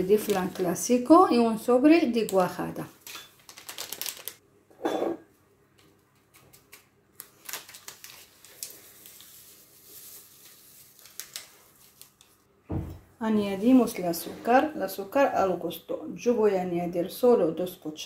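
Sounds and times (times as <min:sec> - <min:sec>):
paper sachets rustling and crinkling: 0:00.0 - 0:01.2, 0:02.0 - 0:04.4, 0:06.6 - 0:12.4.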